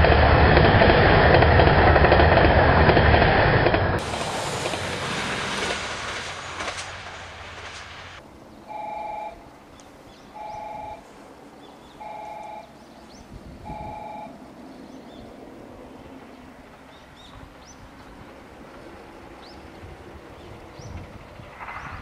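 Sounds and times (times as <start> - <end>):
two-tone warning beeper: 8.7 - 9.4, 10.4 - 11.0, 12.0 - 12.7, 13.7 - 14.3.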